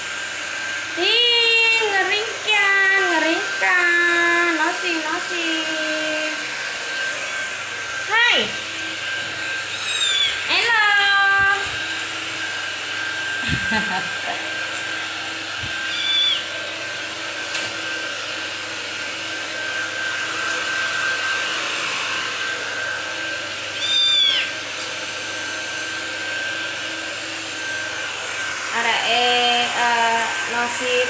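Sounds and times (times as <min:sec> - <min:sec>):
kitten mewing: 0:09.7 - 0:10.5, 0:15.8 - 0:16.5, 0:23.8 - 0:24.5.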